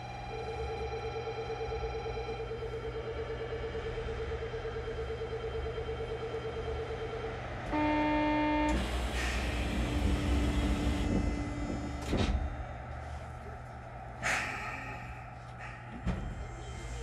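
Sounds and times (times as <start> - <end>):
pulsing electronic warning tone: 0.0 - 12.0
train doors hissing: 8.6 - 12.6.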